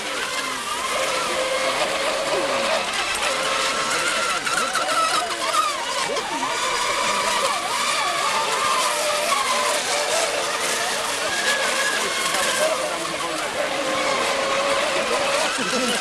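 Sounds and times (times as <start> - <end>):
model boat motors whining: 0.0 - 16.0.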